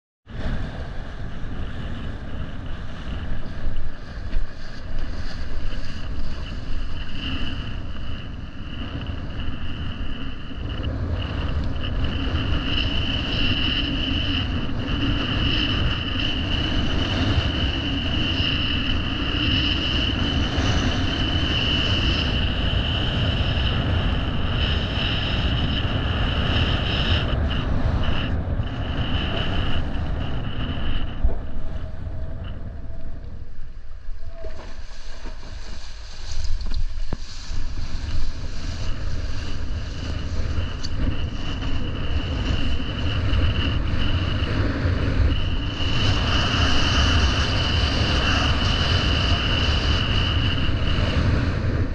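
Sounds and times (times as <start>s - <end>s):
wind buffeting microphone: 0.2s - 51.9s
high-pitched whine: 0.4s - 51.9s.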